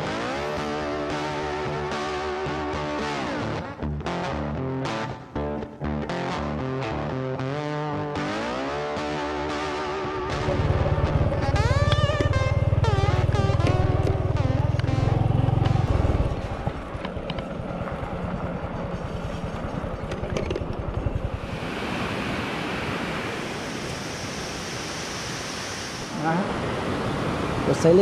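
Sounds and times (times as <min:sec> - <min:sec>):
motor scooter engine running: 0:10.2 - 0:21.6
river rushing over concrete: 0:21.4 - 0:28.0.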